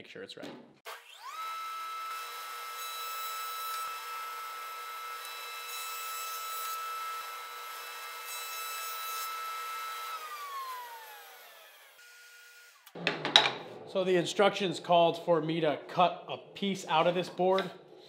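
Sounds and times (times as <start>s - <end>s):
thickness planer whining: 0.9s - 13.0s.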